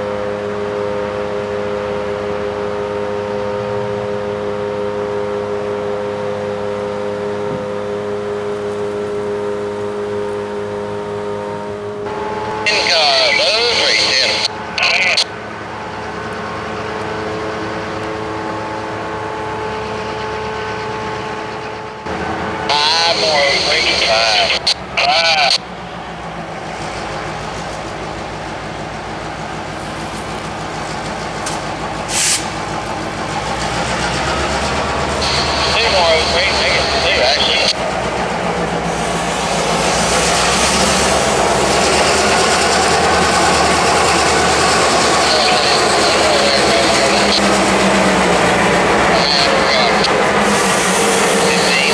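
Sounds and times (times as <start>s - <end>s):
diesel locomotive engine drone: 0.0s - 51.9s
wheel and rail hiss: 29.5s - 37.7s, 38.7s - 47.8s, 49.2s - 51.9s.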